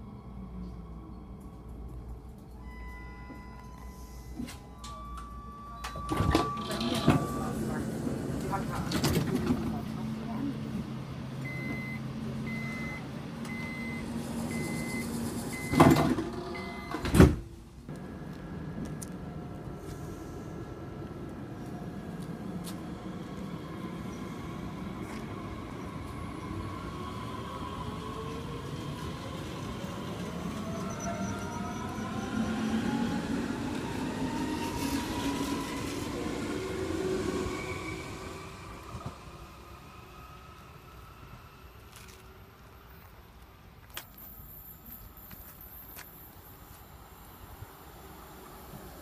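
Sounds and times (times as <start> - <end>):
high warning beep: 11.5 - 15.9
sliding doors shutting with thuds: 14.3 - 17.5
train whine: 17.9 - 42.6.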